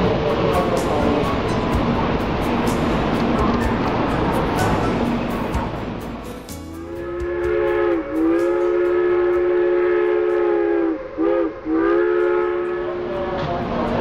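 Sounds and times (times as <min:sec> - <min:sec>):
train horn blasts: 0:06.6 - 0:14.0.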